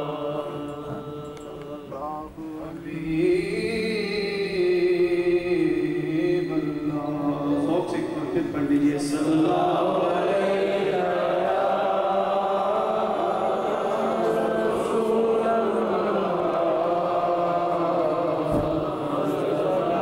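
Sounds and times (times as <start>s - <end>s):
man chanting: 0.0s - 11.2s.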